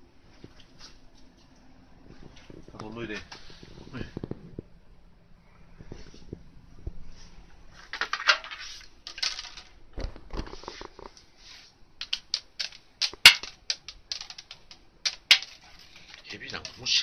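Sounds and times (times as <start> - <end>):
sharp clicks and taps: 12.0 - 16.8
cats scratching and scrabbling: 12.0 - 17.0.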